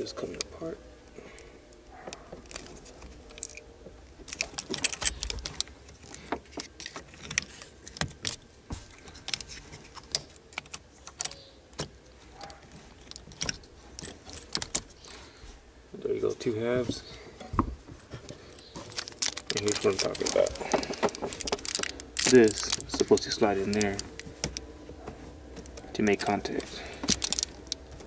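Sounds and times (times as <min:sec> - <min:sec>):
plastic housing clicking and rattling: 0:02.1 - 0:03.6, 0:04.2 - 0:15.0, 0:18.3 - 0:24.7, 0:25.6 - 0:28.0.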